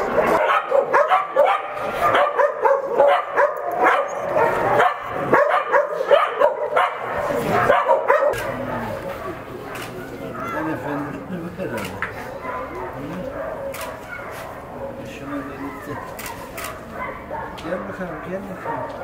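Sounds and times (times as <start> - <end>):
many dogs barking and yipping: 0.0 - 11.1, 12.1 - 19.0.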